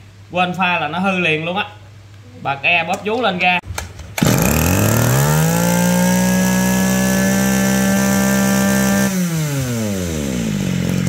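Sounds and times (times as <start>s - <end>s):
brush cutter engine revving: 4.2s - 11.0s.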